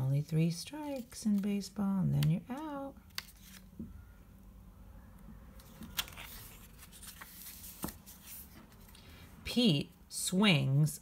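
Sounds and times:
book page turning: 0:00.2 - 0:03.9, 0:05.6 - 0:09.0.

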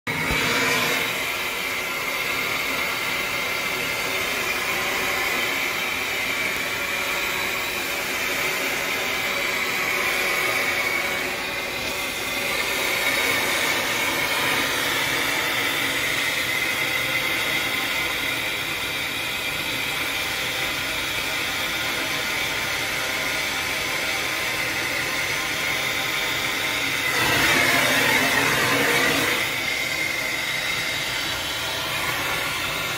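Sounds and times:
gas torch hissing: 0:00.1 - 0:32.9.

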